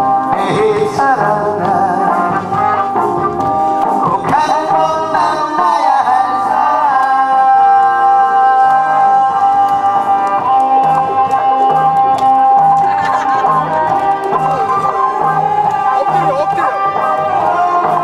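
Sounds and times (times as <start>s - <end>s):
man singing into microphone: 0.0s - 2.9s, 4.0s - 12.0s, 14.6s - 18.0s
instrumental backing music: 0.0s - 18.0s.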